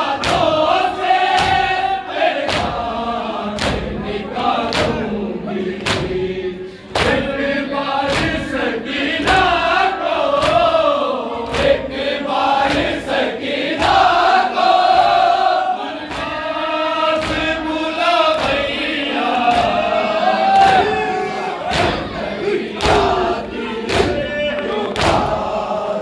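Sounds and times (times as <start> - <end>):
men singing a lament: 0.0 - 26.0
hands slapping chests: 0.2 - 0.6, 1.3 - 1.8, 2.4 - 2.8, 3.6 - 4.0, 4.6 - 5.0, 5.8 - 6.2, 6.9 - 7.3, 8.0 - 8.5, 10.3 - 10.8, 11.4 - 11.9, 12.6 - 13.0, 16.0 - 16.5, 17.1 - 17.6, 22.8 - 25.4.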